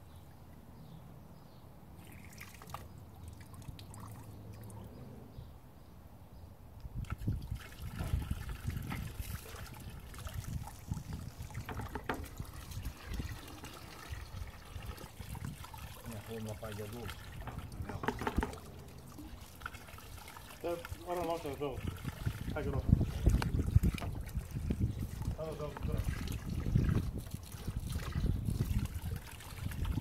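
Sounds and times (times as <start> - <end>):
water spurting and splashing: 1.9 - 4.9, 7.0 - 30.0
sharp pump knocks: 17.5 - 18.6.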